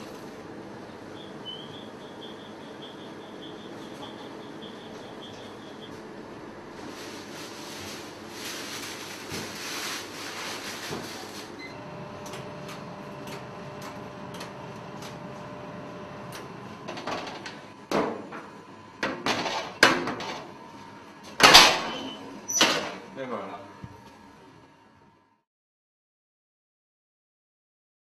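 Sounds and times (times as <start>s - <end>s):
bakery machinery hum: 0.0s - 25.4s
metal knocks and clatters at oven: 16.8s - 20.5s, 21.4s - 23.0s.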